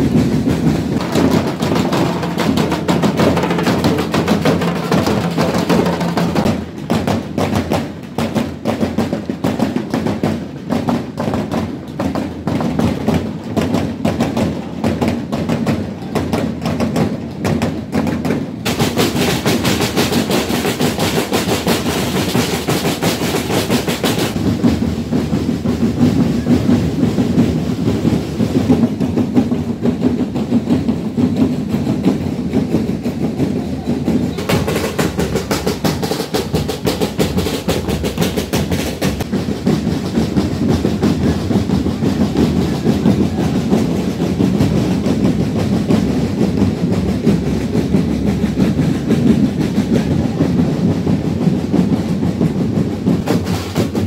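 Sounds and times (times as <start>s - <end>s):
snare and bass drums playing: 0.0s - 54.0s.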